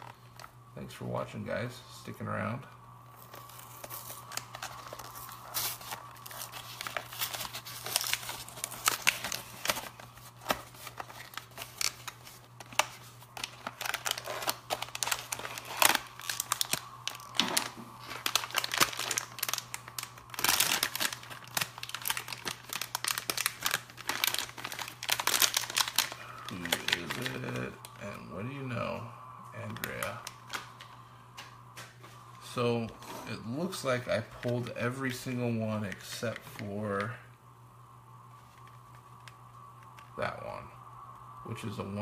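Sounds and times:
toy wrapper crinkling and tearing: 3.2 - 28.0, 29.6 - 30.9.

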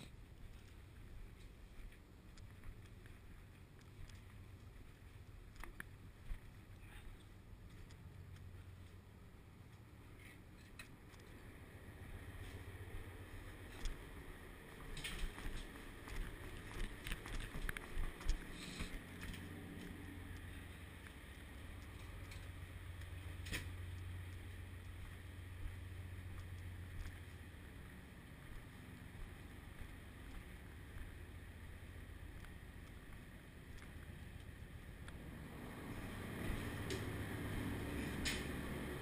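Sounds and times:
ship machinery hum: 0.0 - 39.0
footsteps on metal stairs: 14.7 - 19.9.

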